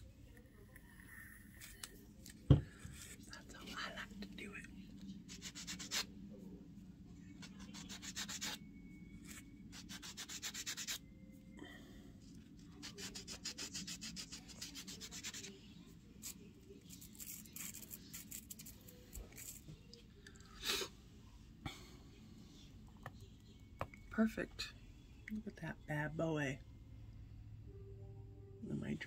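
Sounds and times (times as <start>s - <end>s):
rubbing strokes on fingernail: 5.3s - 6.1s, 7.5s - 8.6s, 12.8s - 15.6s.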